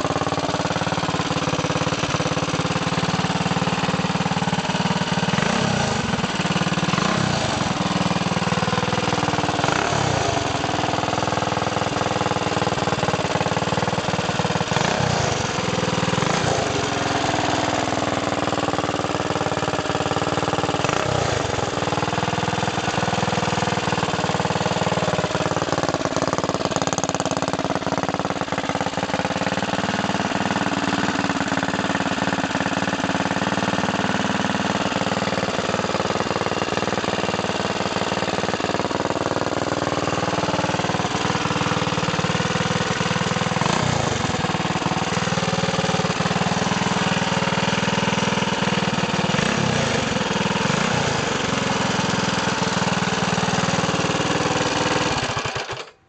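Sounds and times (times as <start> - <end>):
small engine revving: 5.3 - 6.3, 6.9 - 7.8, 9.6 - 10.7, 14.7 - 18.0, 20.8 - 21.7, 42.9 - 46.6, 48.7 - 56.0.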